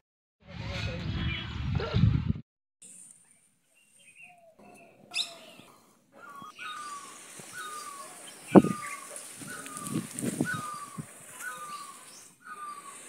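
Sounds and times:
bird whistling calls: 3.8 - 13.0.

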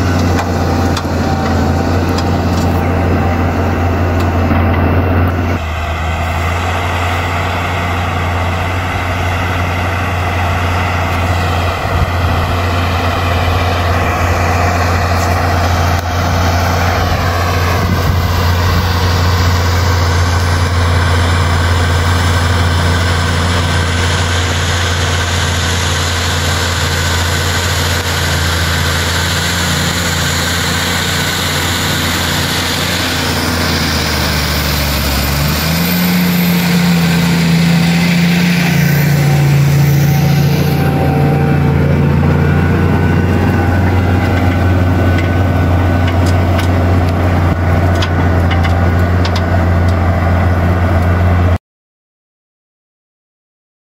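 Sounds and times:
tractor diesel engine under load: 0.0 - 51.6.

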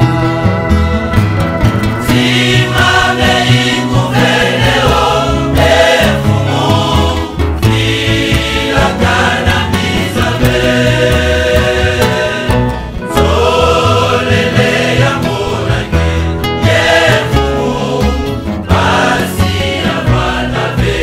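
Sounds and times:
choir singing gospel music: 0.0 - 21.0
held bass notes: 0.0 - 21.0.

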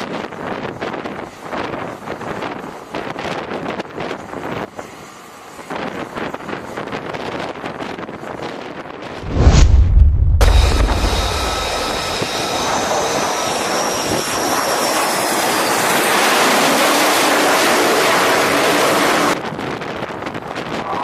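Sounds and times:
jet engines whining: 9.2 - 19.4.

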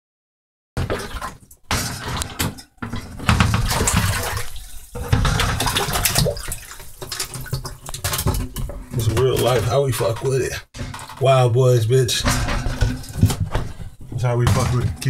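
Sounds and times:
water splashing in tank: 0.8 - 11.4
irregular bumps: 0.8 - 15.0.

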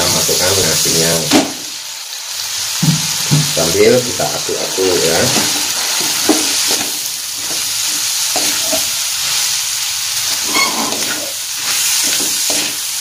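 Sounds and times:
rice sizzling in a wok: 0.0 - 13.0
wooden spatula scraping a wok: 10.4 - 12.9.

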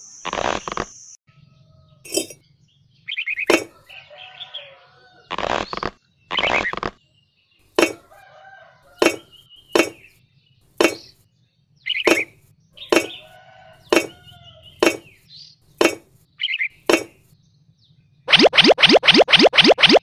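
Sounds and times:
chickens clucking faintly: 3.4 - 5.4, 7.7 - 10.0, 12.0 - 15.2.

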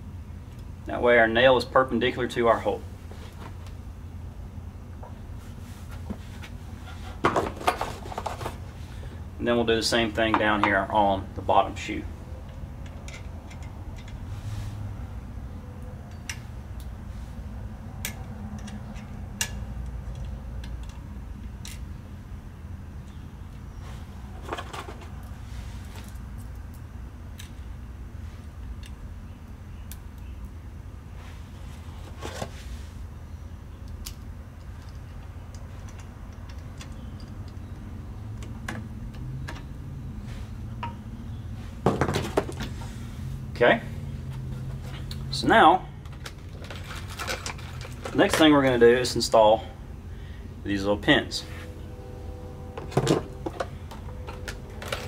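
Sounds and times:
low steady hum: 0.0 - 55.0
light metal clicks and taps: 18.0 - 21.8.

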